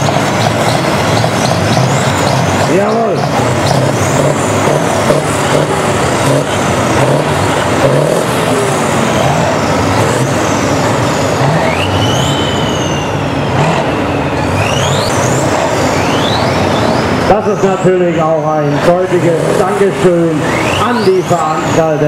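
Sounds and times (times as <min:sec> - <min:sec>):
diesel tractor engines revving: 0:00.0 - 0:22.0
high whistles rising and falling: 0:08.3 - 0:18.1.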